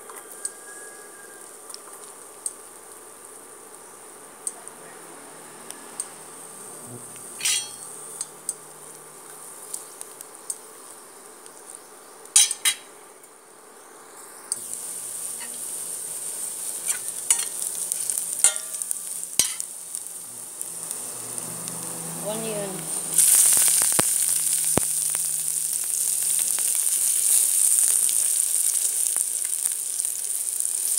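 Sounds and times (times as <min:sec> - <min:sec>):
garlic sizzling in hot oil: 0:07.2 - 0:08.3, 0:12.4 - 0:12.9, 0:14.5 - 0:30.9
spatula scraping and clinking: 0:07.4 - 0:07.9, 0:16.8 - 0:17.6, 0:18.4 - 0:18.8, 0:19.4 - 0:19.6.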